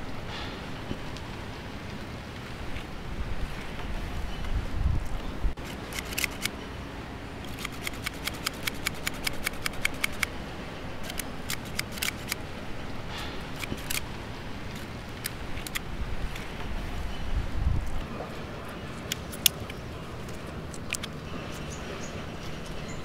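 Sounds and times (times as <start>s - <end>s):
small plastic clicks: 5.6s - 6.5s, 7.5s - 10.3s, 19.0s - 21.2s.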